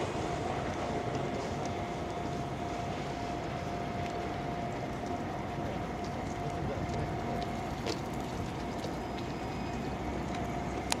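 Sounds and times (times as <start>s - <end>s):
distant train on tracks: 0.0s - 4.8s.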